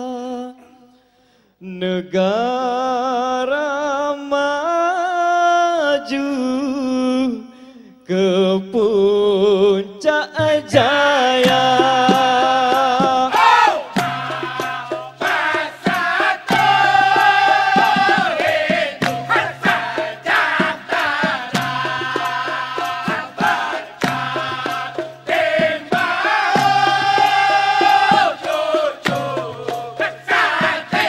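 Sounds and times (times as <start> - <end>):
men singing in chorus: 8.1 - 31.0
percussion strikes: 10.4 - 31.0.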